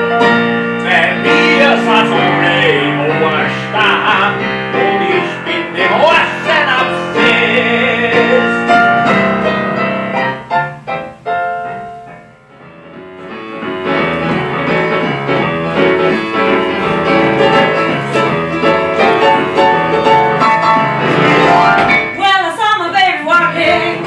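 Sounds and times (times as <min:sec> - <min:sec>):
piano chords: 0:00.0 - 0:24.0.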